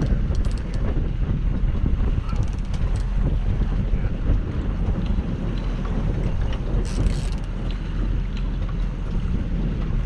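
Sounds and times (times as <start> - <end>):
boat motor rumbling: 0.0 - 10.0
wind buffeting microphone: 0.0 - 10.0.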